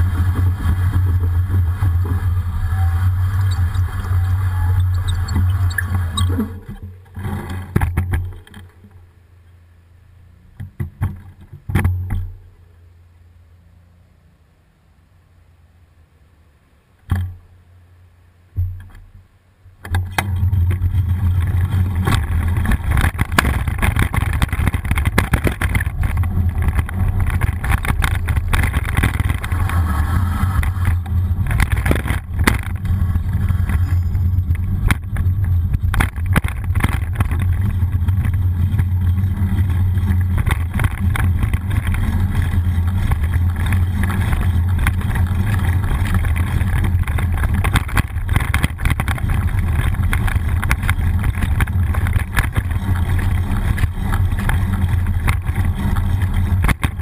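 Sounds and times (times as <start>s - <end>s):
small rattles and crackles: 0.0s - 9.1s, 10.6s - 12.5s, 18.5s - 57.0s
wind and road rumble: 0.0s - 57.0s.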